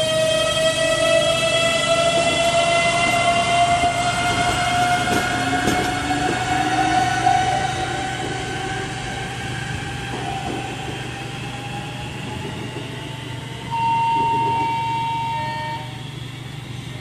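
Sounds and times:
train brakes squealing: 0:13.7 - 0:16.2.

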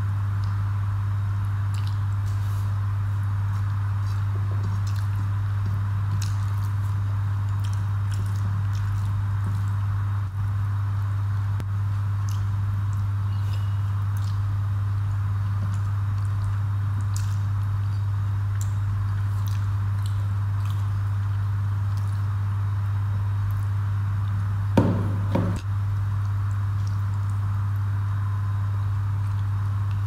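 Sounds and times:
low steady hum: 0:00.0 - 0:30.0
squishes and smacks of eating: 0:00.2 - 0:24.5, 0:25.5 - 0:30.0
bowl knocking on table: 0:24.8 - 0:25.6.

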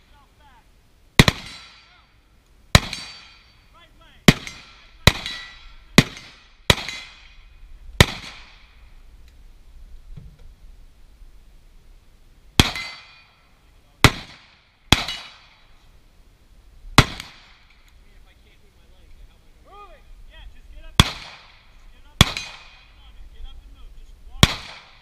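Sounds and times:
gunshots with echo: 0:21.0 - 0:21.6, 0:22.2 - 0:22.9, 0:24.4 - 0:25.0.

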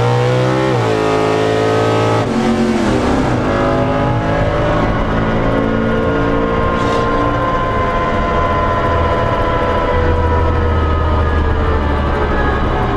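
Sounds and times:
truck engine at low revs: 0:00.0 - 0:12.9.

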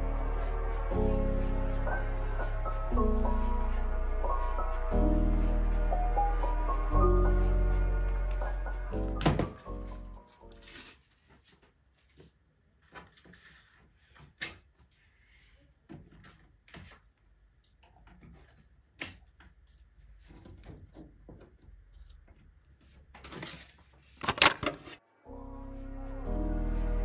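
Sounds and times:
clicks of pegboard accessories: 0:24.2 - 0:25.0.

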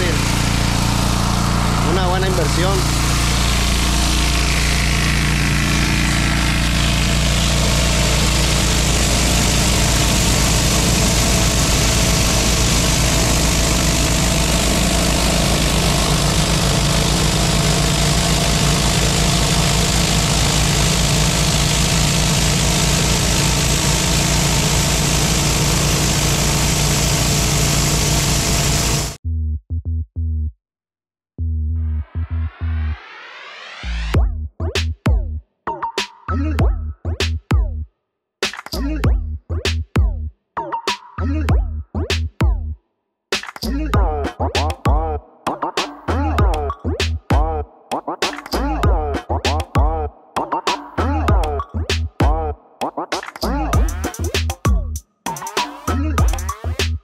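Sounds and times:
pressure washer engine running: 0:00.0 - 0:29.2, 0:53.7 - 0:54.8, 0:55.5 - 0:56.9
water spraying on concrete: 0:02.0 - 0:29.2
choppy electronic music: 0:43.6 - 0:57.0.

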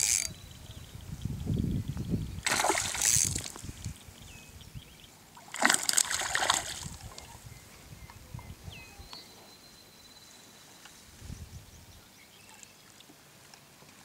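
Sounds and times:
wind rumble on microphone: 0:00.0 - 0:05.0, 0:06.2 - 0:09.1, 0:11.1 - 0:12.1
fish splashing at water surface: 0:02.4 - 0:03.6, 0:05.5 - 0:07.0.

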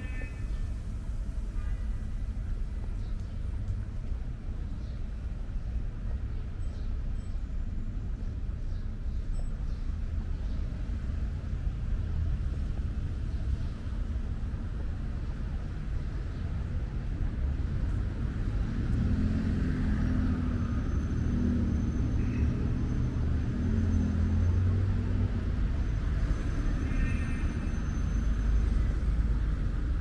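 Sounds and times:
steady low traffic rumble: 0:00.0 - 0:30.0
car engines passing: 0:10.0 - 0:30.0.

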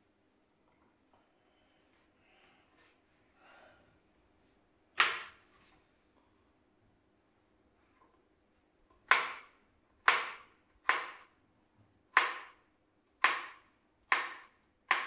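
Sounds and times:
knife chopping on plastic board: 0:05.0 - 0:05.4, 0:09.0 - 0:11.3, 0:12.1 - 0:12.6, 0:13.2 - 0:15.0.

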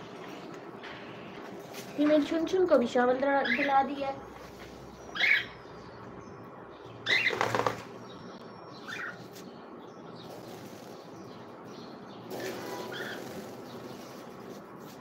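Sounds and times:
parrot chirps: 0:05.1 - 0:05.6
wings flapping: 0:07.1 - 0:08.0.

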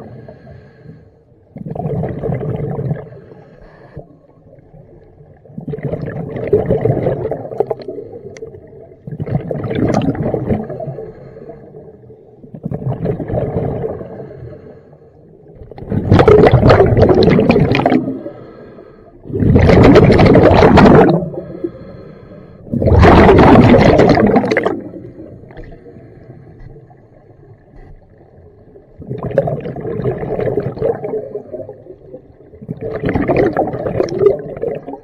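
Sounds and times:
faint hiss of inhaling: 0:00.0 - 0:01.3, 0:03.0 - 0:04.2, 0:10.7 - 0:12.0, 0:14.0 - 0:15.4, 0:18.1 - 0:19.2, 0:21.3 - 0:22.7
air bubbling out underwater: 0:01.5 - 0:03.2, 0:05.3 - 0:11.0, 0:12.5 - 0:14.2, 0:15.6 - 0:18.3, 0:19.2 - 0:21.6, 0:22.6 - 0:25.9, 0:28.9 - 0:35.0.

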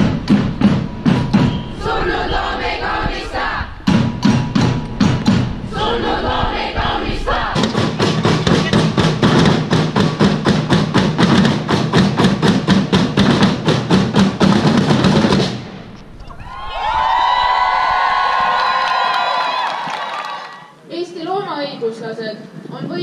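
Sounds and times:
drum beaten fast: 0:00.0 - 0:15.9
crowd chanting: 0:01.2 - 0:03.9, 0:05.6 - 0:09.0.

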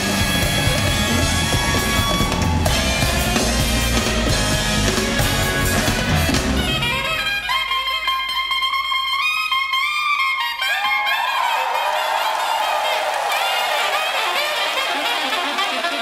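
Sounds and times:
big band jazz: 0:00.0 - 0:08.5
horns playing high held notes: 0:00.0 - 0:16.0.

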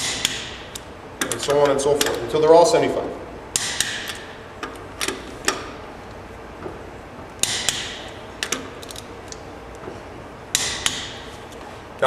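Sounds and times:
torque wrench metal clicks: 0:00.0 - 0:02.3.

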